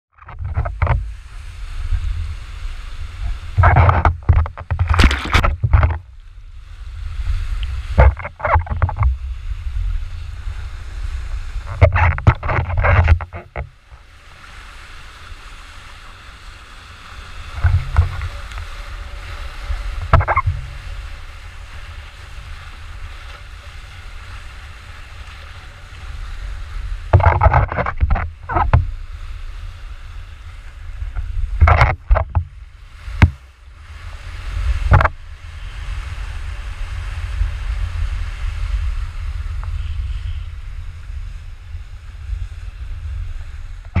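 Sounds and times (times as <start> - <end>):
wind buffeting microphone: 0.3 - 14.0, 17.0 - 44.0
paddle splashing in water: 2.6 - 6.1, 7.4 - 9.2, 10.6 - 35.2.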